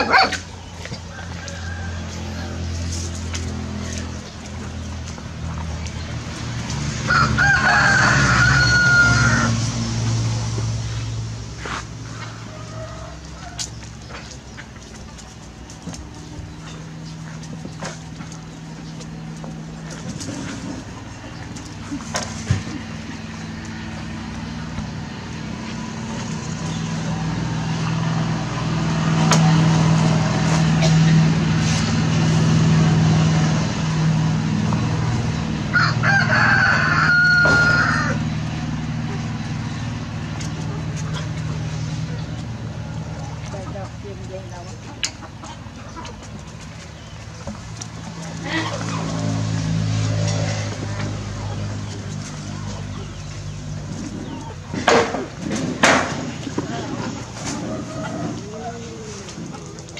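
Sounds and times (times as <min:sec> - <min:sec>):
low engine hum: 0:00.0 - 0:59.9
rooster crowing: 0:01.0 - 0:02.8, 0:07.0 - 0:09.7, 0:12.3 - 0:13.8, 0:35.7 - 0:38.3.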